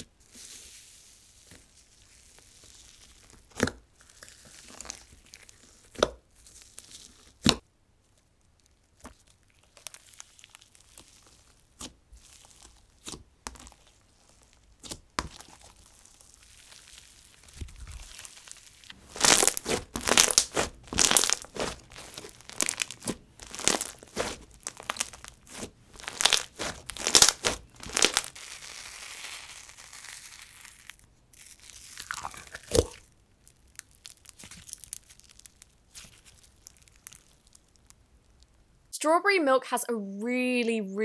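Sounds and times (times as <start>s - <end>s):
slime crackling: 0.0s - 38.6s
slime pops: 32.2s - 33.0s.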